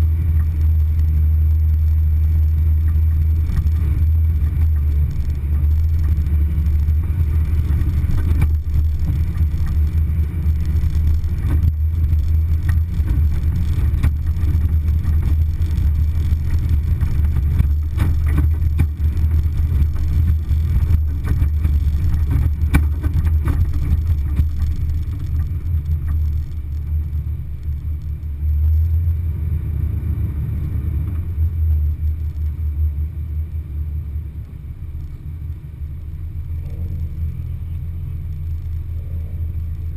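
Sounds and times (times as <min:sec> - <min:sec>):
off-road vehicle rumble: 0:00.0 - 0:39.9
knocks and rattles from bumps: 0:02.8 - 0:26.6.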